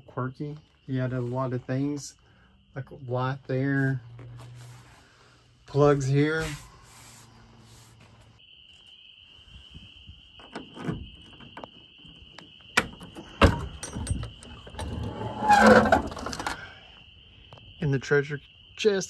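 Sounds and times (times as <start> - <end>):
crickets chirping: 0.0 - 19.0
key turning in metal lock: 10.4 - 15.1.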